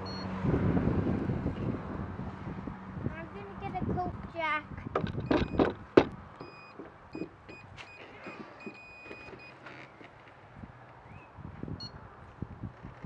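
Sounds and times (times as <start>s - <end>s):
handling clicks and knocks: 5.0s - 10.4s.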